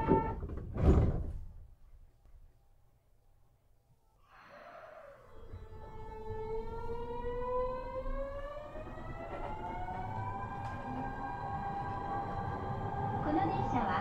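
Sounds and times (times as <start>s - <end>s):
train motors whining: 4.6s - 14.0s.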